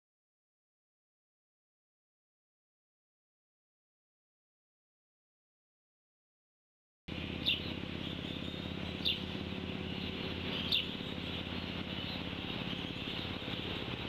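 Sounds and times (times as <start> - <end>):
outdoor background noise: 7.1 - 14.0
small bird chirping: 7.2 - 14.0.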